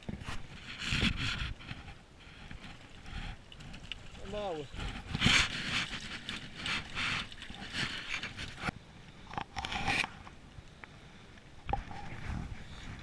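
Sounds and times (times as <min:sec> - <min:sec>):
scraping and handling noises: 0:00.0 - 0:08.7.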